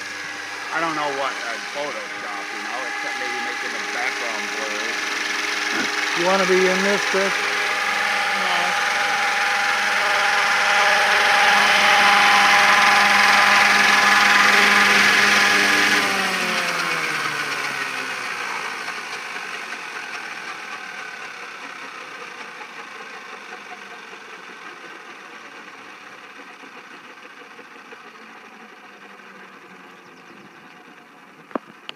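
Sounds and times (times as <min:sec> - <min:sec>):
model helicopter rotor: 0:00.0 - 0:31.9.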